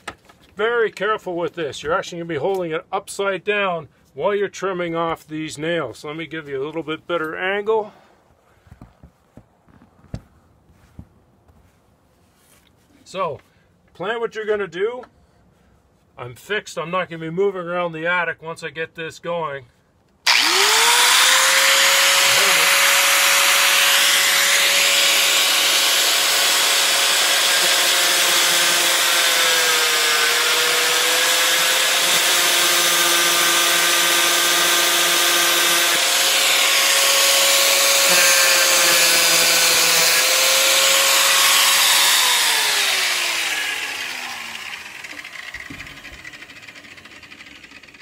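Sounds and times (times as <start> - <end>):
angle grinder cutting steel nails: 20.3 - 48.0.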